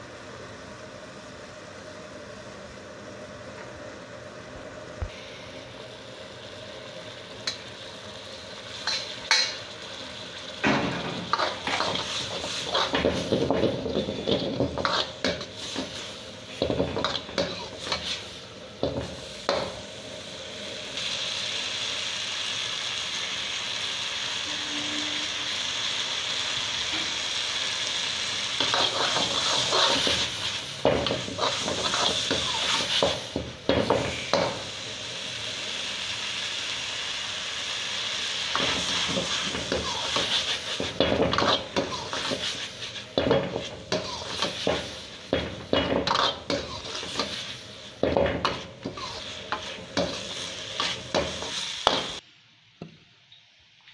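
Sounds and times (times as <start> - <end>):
food sizzling: 0.0 - 52.4
metal ladle scraping a wok: 10.8 - 18.3, 28.6 - 33.2, 38.5 - 52.2.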